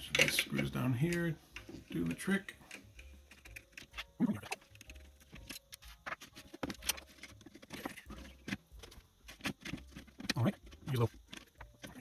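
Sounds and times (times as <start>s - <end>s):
plastic fan being pried out: 2.6s - 12.0s.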